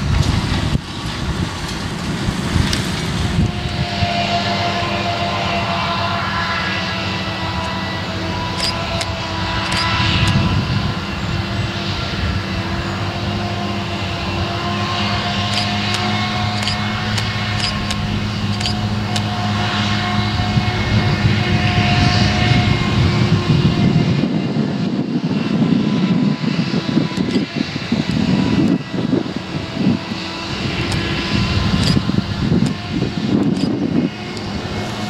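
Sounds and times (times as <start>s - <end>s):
tractor engine running: 0.0s - 11.6s, 13.0s - 21.7s, 27.1s - 35.0s
forage harvester engine drone: 0.0s - 35.0s.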